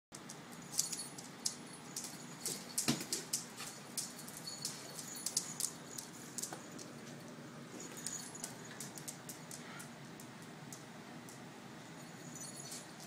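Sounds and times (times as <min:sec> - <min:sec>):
dog claws skittering on hard floor: 0:00.3 - 0:10.3.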